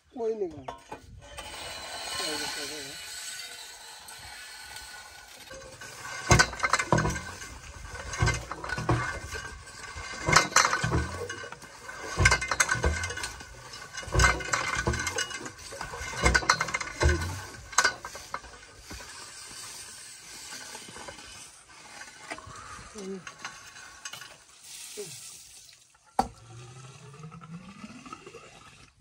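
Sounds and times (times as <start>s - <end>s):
drilling pipe thud and metallic clank: 0.7s - 21.3s, 26.2s - 26.4s.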